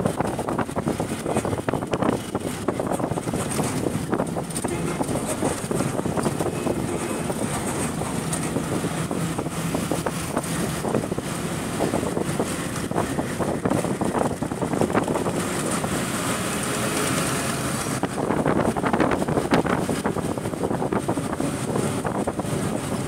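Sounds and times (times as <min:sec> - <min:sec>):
knocks and rattles: 0:00.0 - 0:11.2
road noise: 0:00.0 - 0:23.0
vehicle engine hum: 0:00.0 - 0:23.0.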